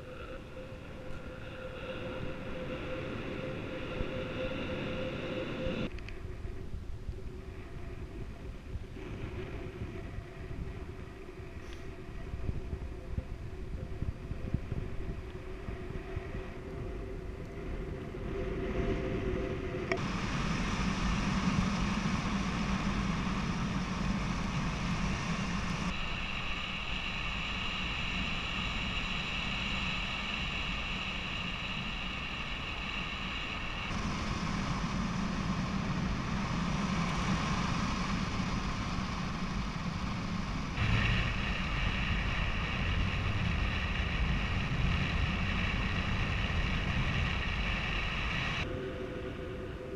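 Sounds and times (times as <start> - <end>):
faint steady tones: 0.0 - 49.9
wind rushing over microphone: 0.0 - 49.9.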